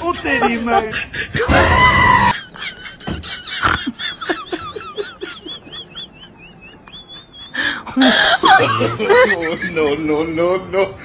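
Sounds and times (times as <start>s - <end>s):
voice: 0.0s - 1.7s, 8.0s - 11.0s.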